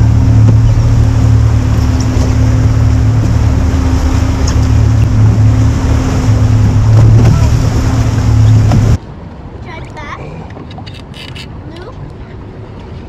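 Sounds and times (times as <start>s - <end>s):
outboard motor humming: 0.0s - 9.0s
water on choppy sea: 0.0s - 13.0s
wind: 0.0s - 13.0s.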